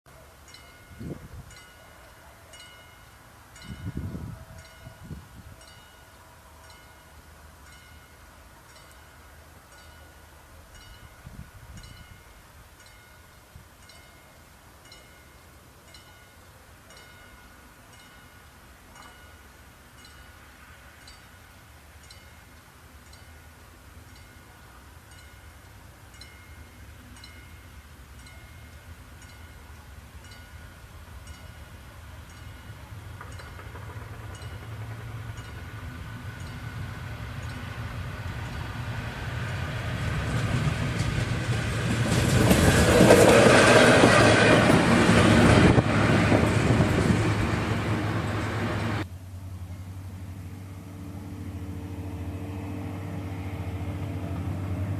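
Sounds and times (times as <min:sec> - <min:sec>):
diesel locomotive engine hum: 0:00.1 - 0:54.9
level crossing warning bell: 0:00.4 - 0:38.1.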